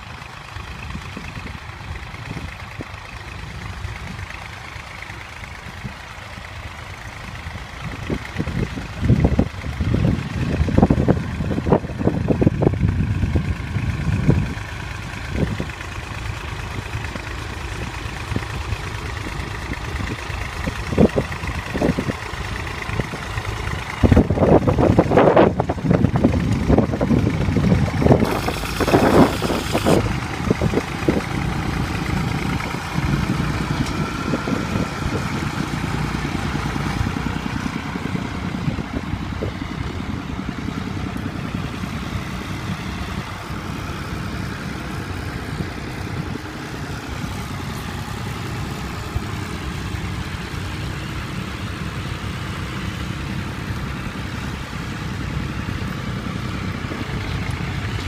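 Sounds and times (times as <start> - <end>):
tractor engine running: 0.0 - 58.0
wind buffeting microphone: 7.6 - 15.9, 17.7 - 49.9.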